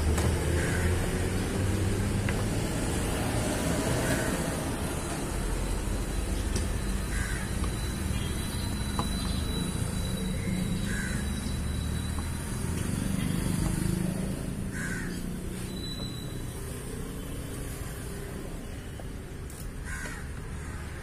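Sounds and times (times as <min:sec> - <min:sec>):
crow cawing: 0:00.6 - 0:01.1, 0:04.0 - 0:04.5, 0:07.0 - 0:07.6, 0:10.4 - 0:11.4, 0:14.7 - 0:15.3, 0:19.8 - 0:21.0.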